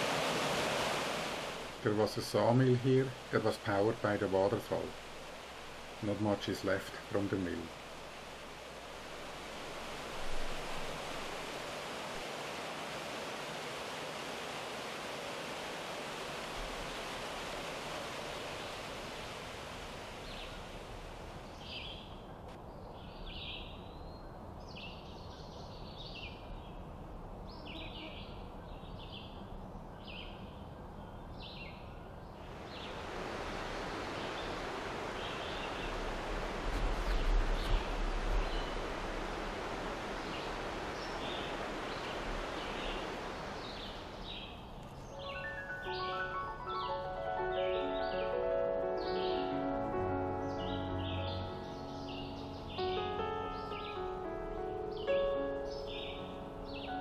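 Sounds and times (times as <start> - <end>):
waterfall rushing: 0.0 - 21.8, 32.4 - 57.0
bird chirping: 40.2 - 48.4, 49.0 - 54.2, 54.8 - 57.0.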